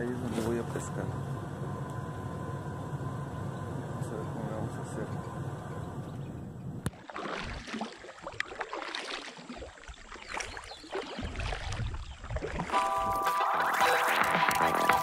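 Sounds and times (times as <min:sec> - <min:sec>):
paddle splashing in water: 0:06.9 - 0:15.0.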